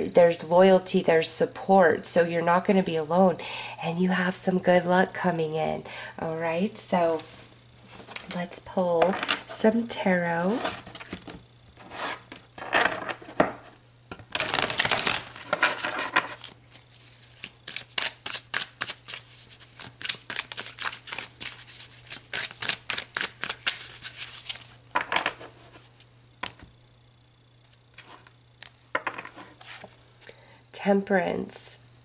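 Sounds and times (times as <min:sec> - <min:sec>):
cards riffling: 0:14.3 - 0:24.8.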